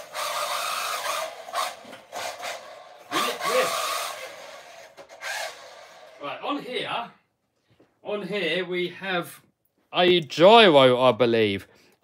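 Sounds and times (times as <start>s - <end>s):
rc car motor whine: 0.0s - 6.3s.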